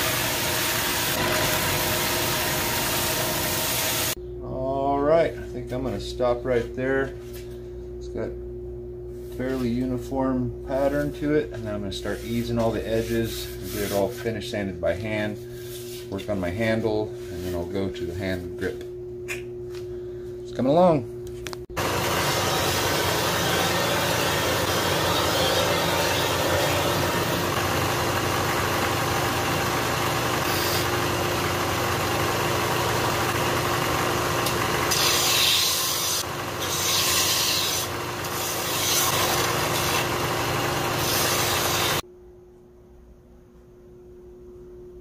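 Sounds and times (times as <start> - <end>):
belt sander motor hum: 0.0 - 4.2, 21.8 - 42.0
wood rasping on sanding belt: 12.0 - 14.2, 22.0 - 27.5, 30.3 - 31.0, 34.9 - 40.2, 40.8 - 42.0.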